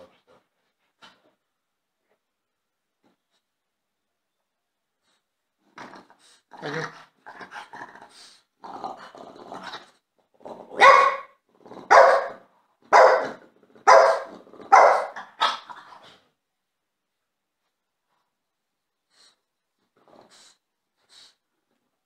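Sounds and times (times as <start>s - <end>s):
dog growling and grumbling: 5.6s - 10.8s, 11.4s - 12.0s, 13.3s - 16.2s
dog barking loudly: 10.8s - 15.7s.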